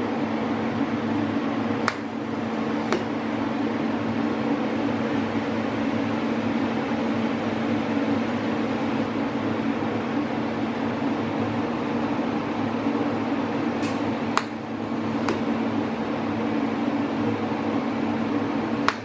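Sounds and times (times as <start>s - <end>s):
welder humming: 1.2s - 3.8s, 13.8s - 15.7s, 18.8s - 19.0s.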